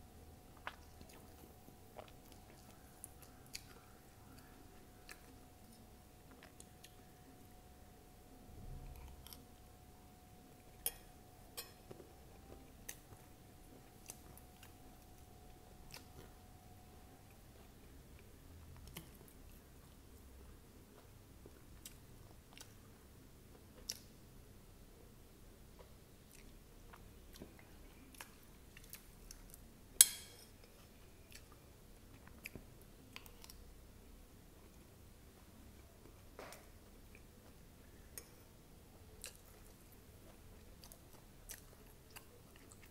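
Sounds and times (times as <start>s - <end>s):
faint steady hum: 0.0s - 42.9s
person chewing crunchy food: 0.5s - 7.2s, 39.2s - 42.9s
close-up chewing: 0.5s - 7.4s, 11.8s - 20.0s, 25.8s - 29.6s, 39.1s - 42.9s.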